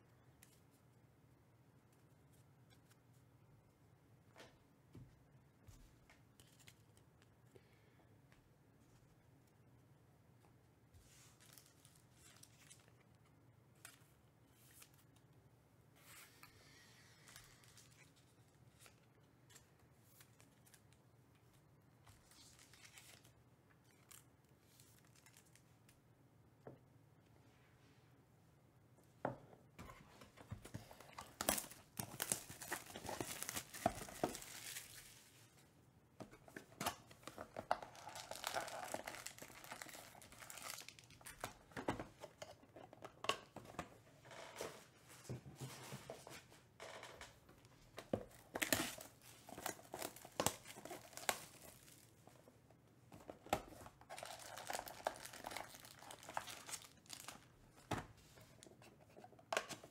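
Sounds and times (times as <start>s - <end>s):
plastic wrapper tearing and crinkling: 31.2s - 35.2s, 37.2s - 41.6s, 48.3s - 52.1s, 54.0s - 57.5s.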